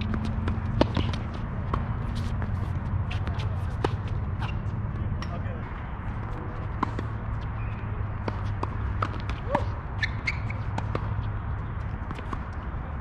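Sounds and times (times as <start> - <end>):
tennis ball hitting racket and court: 0.0 - 5.4, 6.2 - 12.7
shoe squeaks: 4.3 - 4.8, 7.4 - 11.3.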